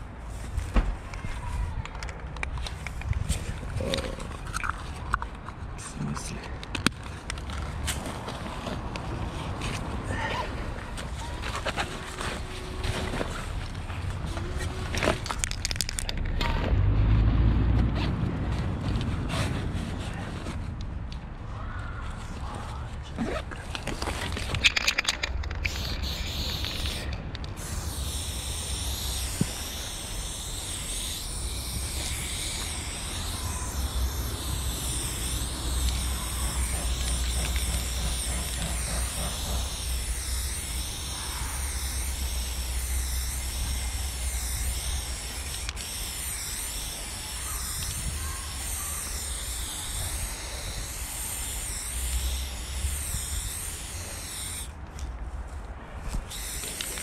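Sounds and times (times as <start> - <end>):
spray paint can hissing: 23.9 - 54.7, 56.3 - 57.0.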